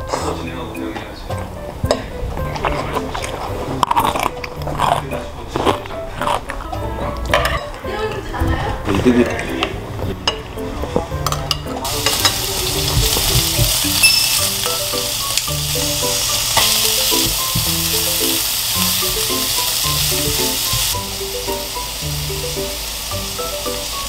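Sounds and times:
background music: 0.0s - 24.0s
meat sizzling in a pan: 11.8s - 24.0s.

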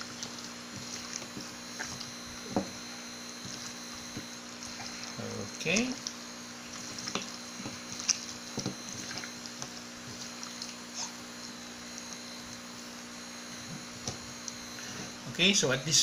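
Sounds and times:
hands squelching raw chicken: 0.0s - 11.2s
low electrical hum: 0.0s - 16.0s.

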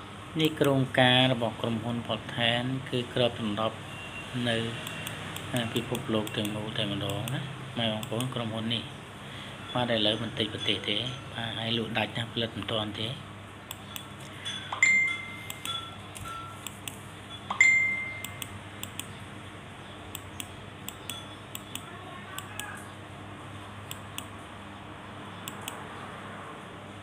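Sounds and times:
sharp ringing clinks: 14.4s - 16.6s, 17.3s - 18.4s, 21.0s - 21.4s.

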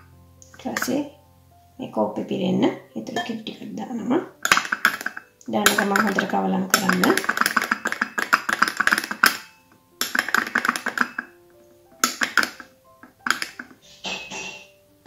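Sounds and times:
quiet background music: 0.0s - 15.0s
teaspoon clinking in a cup: 4.4s - 11.4s, 12.0s - 14.7s.

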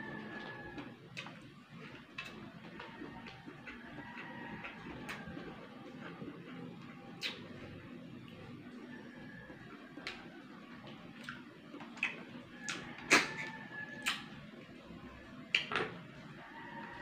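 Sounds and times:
wet mouth smacks and sucks: 7.2s - 7.5s, 11.2s - 14.3s.

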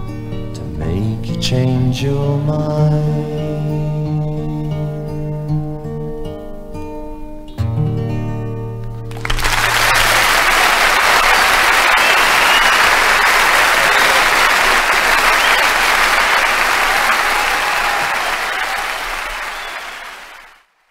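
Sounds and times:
audience applauding: 9.1s - 20.7s.

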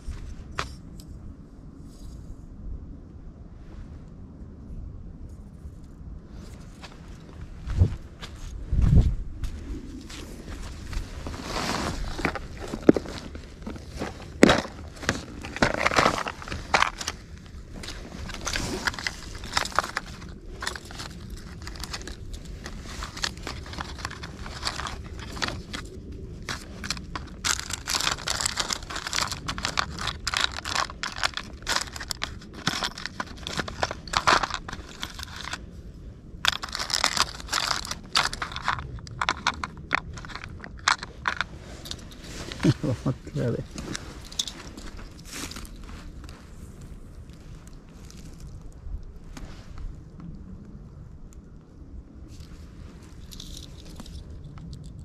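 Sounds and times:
plastic packets rustling: 11.2s - 35.6s, 36.4s - 46.3s.

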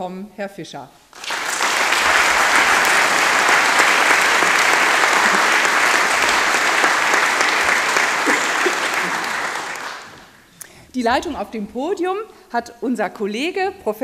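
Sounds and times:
audience applauding: 1.2s - 10.5s.

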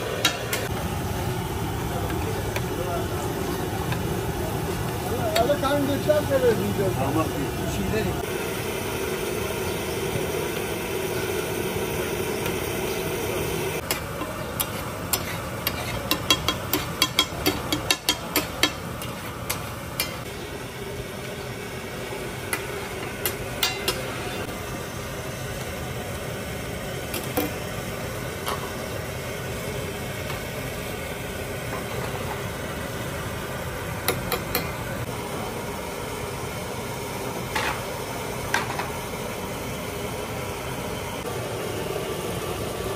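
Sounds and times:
steady background noise: 0.0s - 42.9s
metal spatula clicking and scraping: 13.9s - 20.2s.

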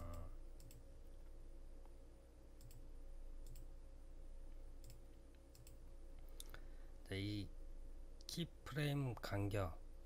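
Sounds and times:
computer mouse clicks: 0.0s - 0.9s, 2.6s - 3.7s, 4.8s - 6.6s
low steady hum: 0.0s - 10.0s.

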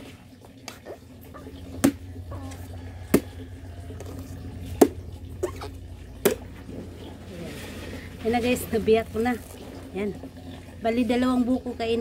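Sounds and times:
machete chopping coconut: 1.8s - 3.4s, 4.8s - 5.0s, 6.2s - 6.4s.

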